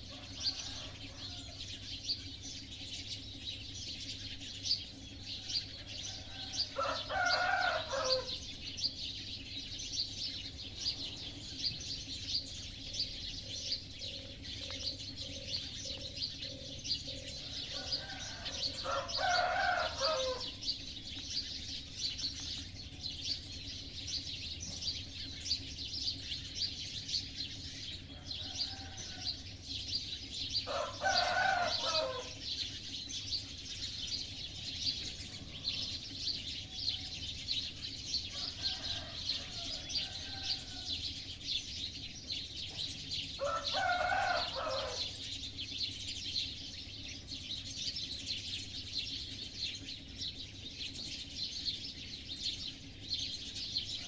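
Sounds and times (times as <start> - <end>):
rooster crowing: 0.0 - 1.8, 5.8 - 8.5, 17.3 - 20.7, 28.1 - 29.5, 30.6 - 32.5, 38.2 - 41.1, 43.4 - 45.2
distant roosters crowing: 0.0 - 54.0
small birds chirping: 0.0 - 54.0.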